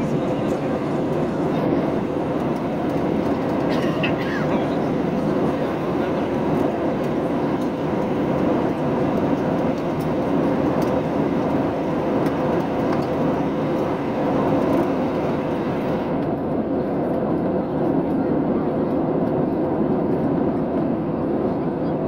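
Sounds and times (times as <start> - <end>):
jet engine and airflow rush: 0.0 - 22.0.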